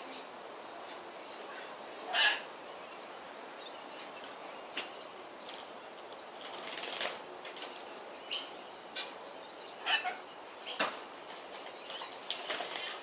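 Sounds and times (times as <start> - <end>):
bird wings fluttering: 5.4 - 7.9, 10.8 - 13.0
bird chirping: 7.6 - 13.0.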